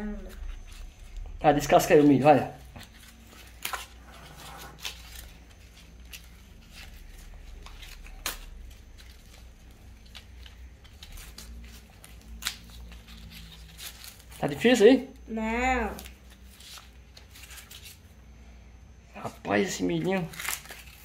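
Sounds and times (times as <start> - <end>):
corn husks tearing and rustling: 4.7 - 14.7, 20.0 - 21.0.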